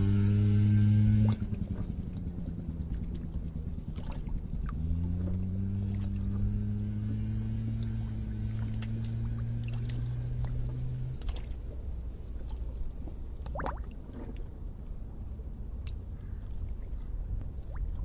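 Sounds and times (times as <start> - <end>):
low steady hum: 0.0 - 18.0
water bubbling: 2.8 - 6.5, 7.5 - 11.7, 12.3 - 14.6, 15.9 - 18.0.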